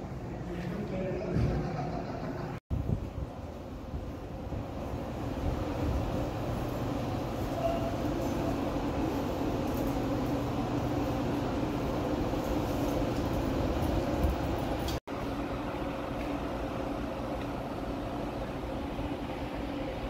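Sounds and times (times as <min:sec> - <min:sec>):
metro train rumble: 0:00.0 - 0:20.0
steady hum: 0:00.0 - 0:20.0.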